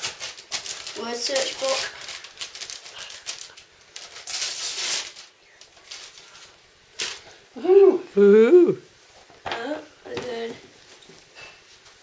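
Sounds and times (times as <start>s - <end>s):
wrapping paper crackling and tearing: 0.0s - 7.2s.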